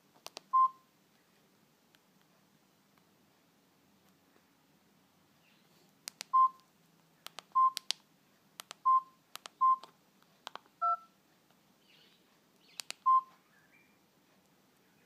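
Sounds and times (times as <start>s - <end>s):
short keypad beeps: 0.5s - 0.8s, 6.3s - 6.6s, 7.6s - 7.8s, 8.8s - 9.9s, 10.8s - 11.1s, 13.0s - 13.3s.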